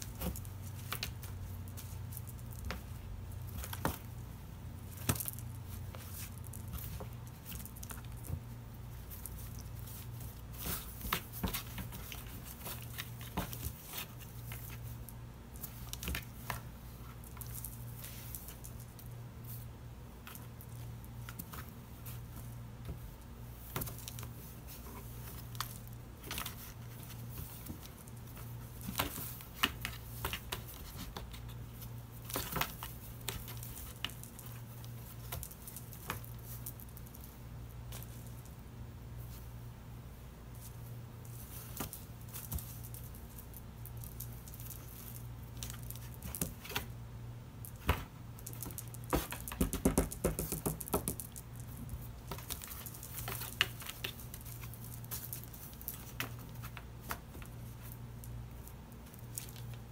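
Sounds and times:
cats scratching in cardboard boxes: 0:26.2 - 0:35.7.

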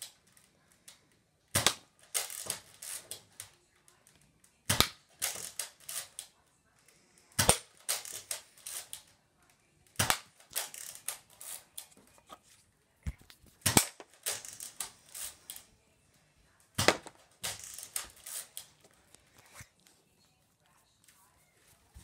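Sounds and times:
small clicks and rattles: 0:13.6 - 0:16.2
foam dart blaster firing: 0:16.8 - 0:17.6.

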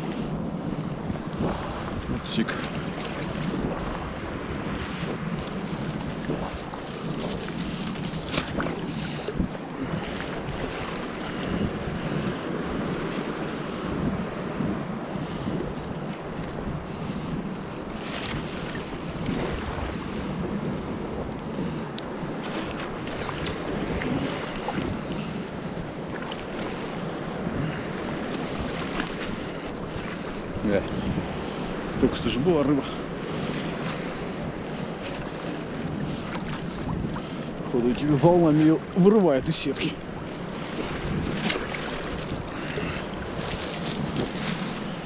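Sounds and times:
sea surf washing: 0:00.0 - 0:45.0
wind buffeting microphone: 0:00.0 - 0:45.0
seawater sloshing around legs: 0:04.8 - 0:12.5, 0:22.3 - 0:31.2, 0:33.2 - 0:45.0.

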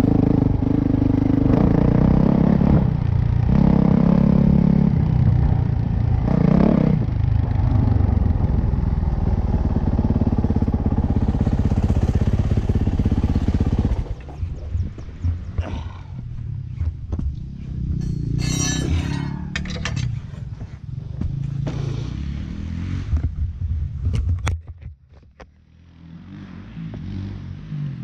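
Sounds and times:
motorcycle engine revving: 0:00.0 - 0:15.6, 0:16.4 - 0:23.5, 0:25.6 - 0:28.0
clicks and rattles: 0:18.0 - 0:20.2.

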